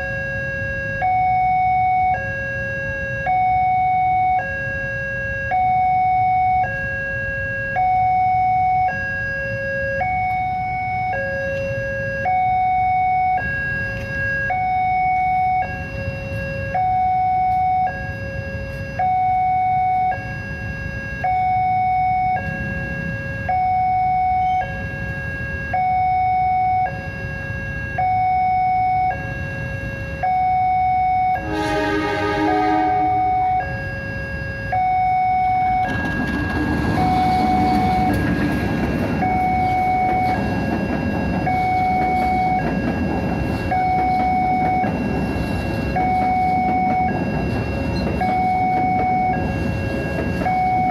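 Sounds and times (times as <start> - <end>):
level crossing alarm tones: 0.0 - 50.9
low traffic rumble: 0.0 - 50.9
locomotive horn: 31.3 - 33.8.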